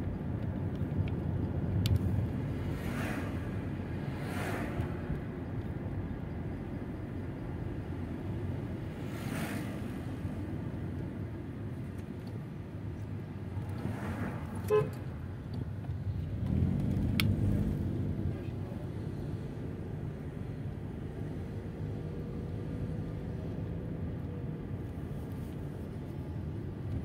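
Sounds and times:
car engine and road rumble: 0.0s - 27.0s
cars whooshing past: 2.2s - 5.5s, 8.7s - 10.5s, 13.6s - 15.3s
car horn toot: 14.6s - 15.0s.

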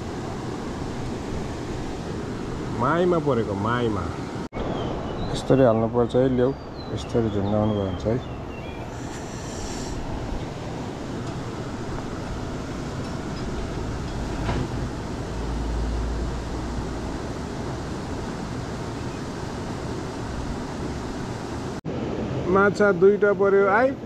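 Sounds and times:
flowing river water: 0.0s - 5.1s, 8.6s - 22.4s.

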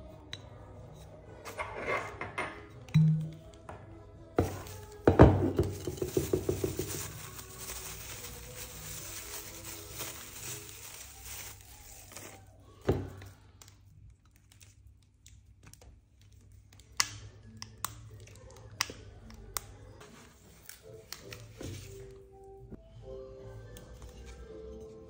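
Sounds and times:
plastic wrapping crinkling: 4.4s - 16.7s.

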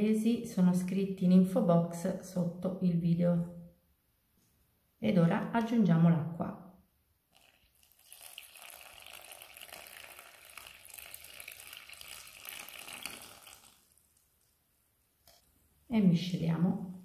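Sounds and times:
water pouring into flour: 7.3s - 14.4s.

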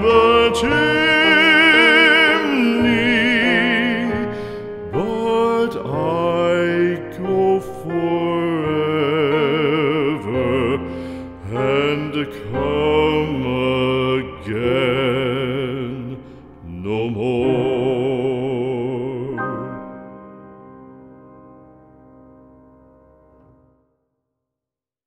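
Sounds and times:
voice singing with vibrato: 0.0s - 4.3s, 4.9s - 19.8s
slow ballad: 0.0s - 23.7s.

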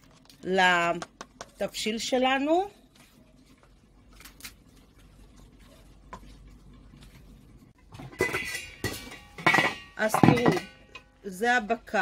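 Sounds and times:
kitchen utensils clattering: 7.8s - 11.1s.

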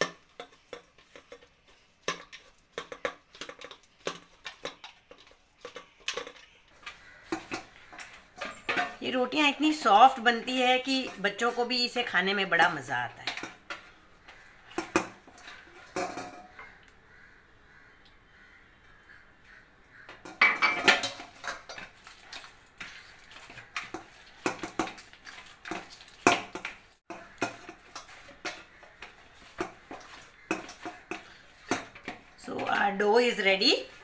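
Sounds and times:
metal bowl knocking and scraping: 0.0s - 16.9s, 20.0s - 34.0s.

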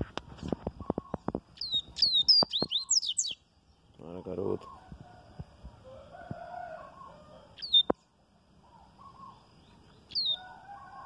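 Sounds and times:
bird singing: 0.8s - 5.0s, 6.8s - 11.0s.

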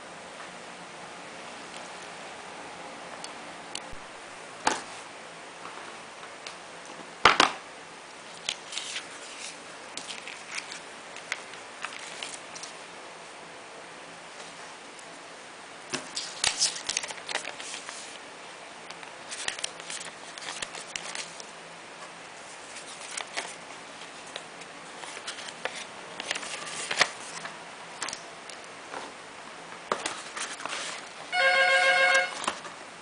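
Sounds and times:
packaging bags crinkling: 8.4s - 12.8s.

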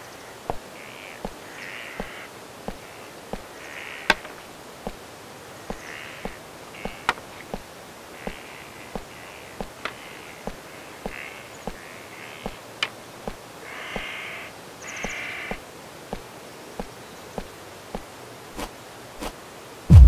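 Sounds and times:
bird cawing harshly: 0.8s - 2.3s, 5.7s - 7.1s, 11.1s - 12.6s, 13.6s - 15.6s.

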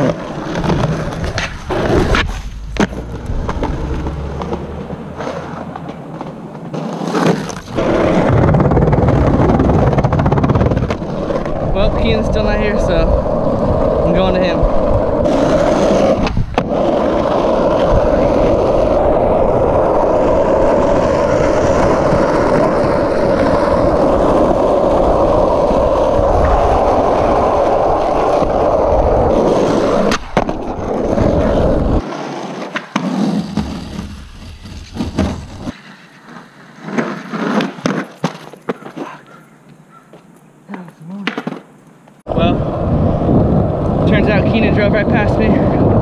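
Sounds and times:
skateboard wheels rolling on asphalt: 0.0s - 46.0s
skateboard clacks: 15.3s - 39.4s.

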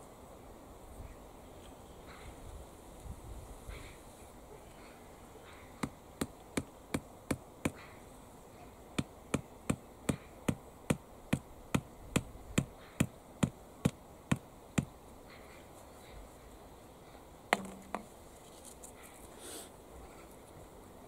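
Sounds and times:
hammer striking wooden stake: 5.8s - 7.8s, 9.0s - 15.0s, 17.5s - 18.1s.

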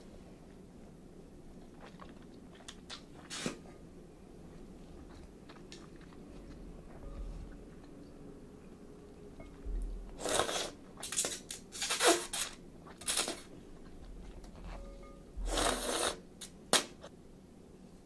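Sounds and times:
person slurping noodles: 10.2s - 10.8s, 15.4s - 16.2s.

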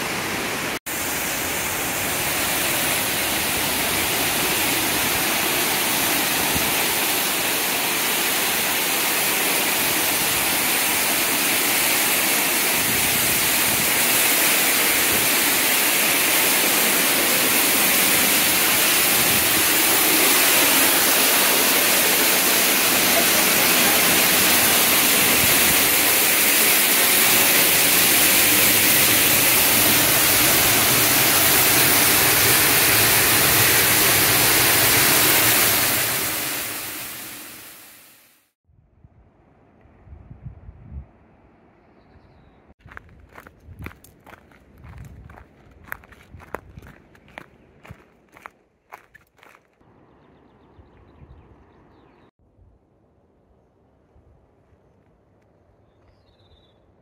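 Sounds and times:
waterfall rushing: 0.0s - 38.2s.

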